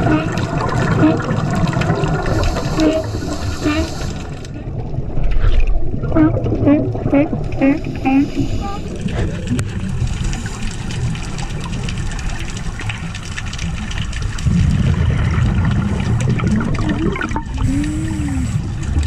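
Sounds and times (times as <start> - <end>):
underwater bubbles gurgling: 0.0 - 19.0
low rumble: 14.1 - 18.9.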